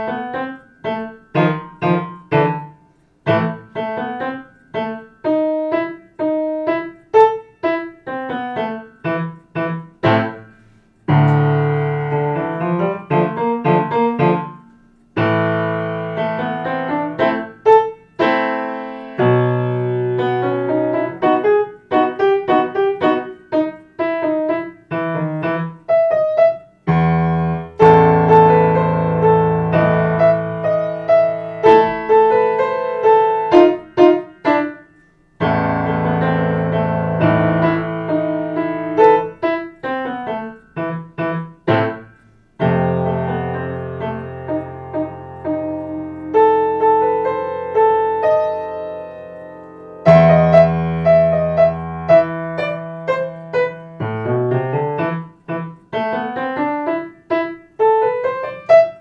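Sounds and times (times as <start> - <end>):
solo piano piece: 0.0 - 59.0.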